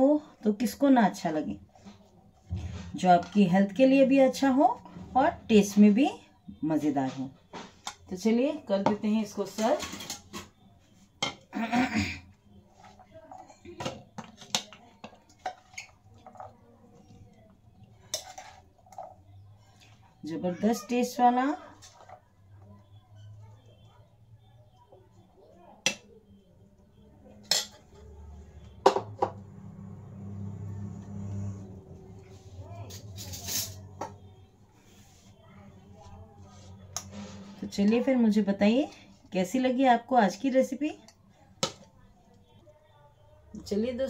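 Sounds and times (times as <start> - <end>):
metal spoon scraping a bowl: 17.8 - 19.9, 32.9 - 34.2
metal spoon clinking on dishes: 27.4 - 28.0.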